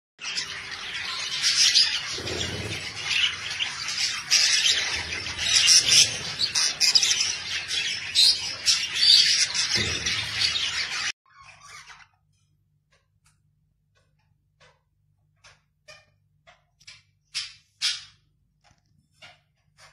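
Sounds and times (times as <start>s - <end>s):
budgerigars chattering: 0.2s - 11.9s.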